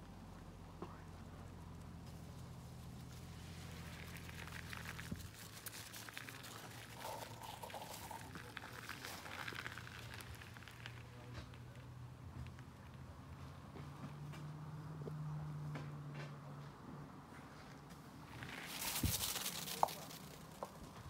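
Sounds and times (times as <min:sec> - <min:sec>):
paws crunching on gravel: 0:01.8 - 0:13.5, 0:18.2 - 0:21.0.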